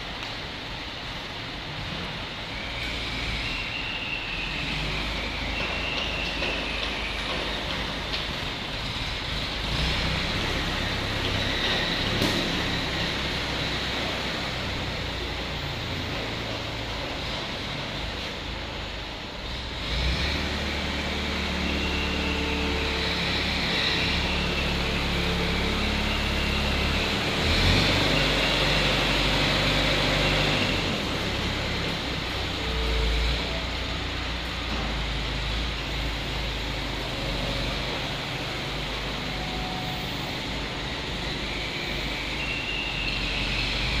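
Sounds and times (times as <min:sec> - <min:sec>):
diesel crane engine running: 0:00.0 - 0:44.0
high wavering whine: 0:38.0 - 0:43.8.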